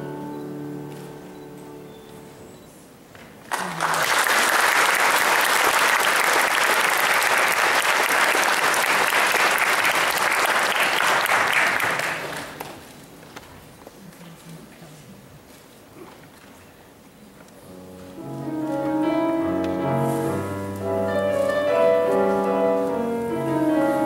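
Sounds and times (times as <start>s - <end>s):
music with sustained notes: 0.0s - 2.6s, 17.7s - 24.0s
audience applauding: 3.4s - 12.8s.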